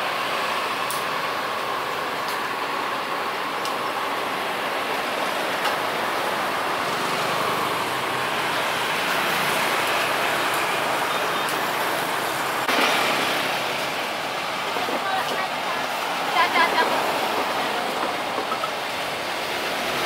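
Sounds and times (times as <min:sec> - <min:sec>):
traffic going by: 0:00.0 - 0:20.0.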